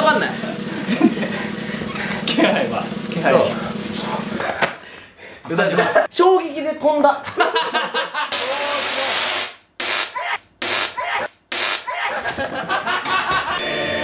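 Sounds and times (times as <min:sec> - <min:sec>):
tesla coil spark crackling: 0:08.3 - 0:12.0.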